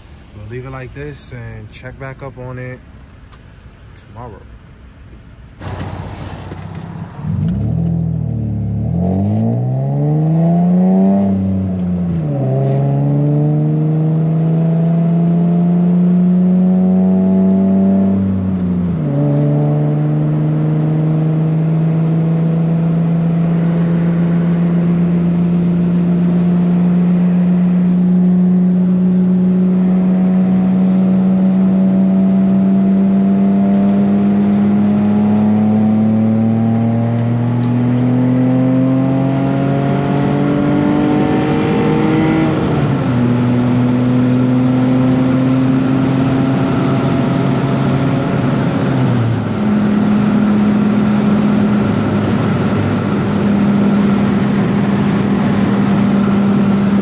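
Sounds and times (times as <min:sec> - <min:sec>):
road and wind noise: 0:00.0 - 0:57.0
car engine pulling under load: 0:05.0 - 0:10.4.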